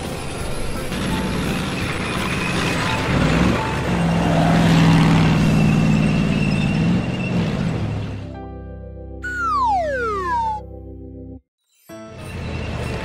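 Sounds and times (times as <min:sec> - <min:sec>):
background music: 0:08.3 - 0:13.0
cartoon engine running: 0:09.2 - 0:10.6.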